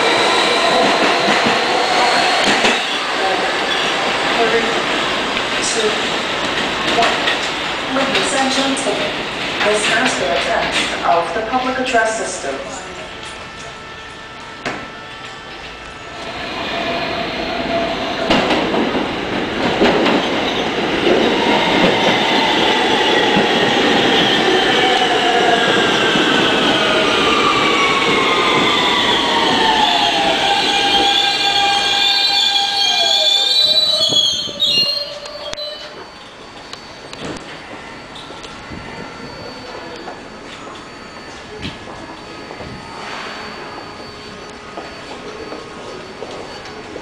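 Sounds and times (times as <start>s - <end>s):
subway train wheels rumbling: 0.0s - 47.0s
train whining tones: 0.0s - 47.0s
high wavering squeals: 20.3s - 47.0s.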